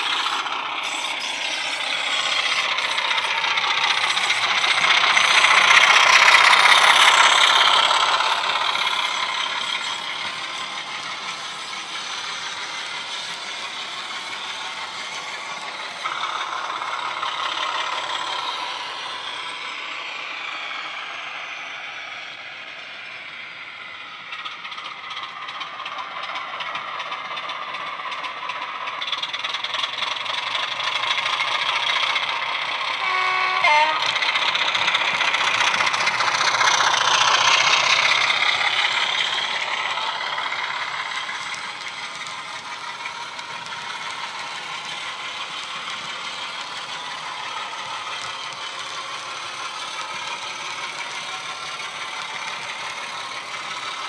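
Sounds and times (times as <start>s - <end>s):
model train wheels rattling on track: 0.0s - 54.0s
diesel engine sound from speaker: 33.0s - 34.2s.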